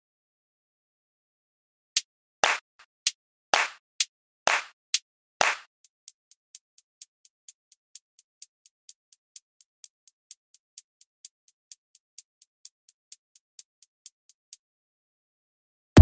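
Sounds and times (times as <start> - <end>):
drum machine hi-hat ticks: 2.0 - 14.6.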